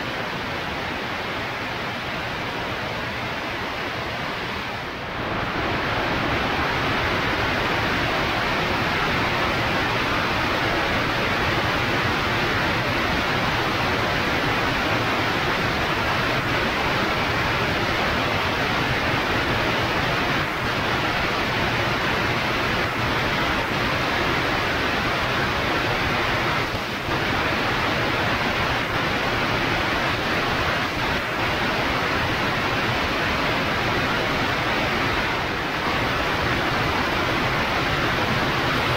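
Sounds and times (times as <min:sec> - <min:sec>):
aircraft wind and engine hiss: 0:00.0 - 0:38.9.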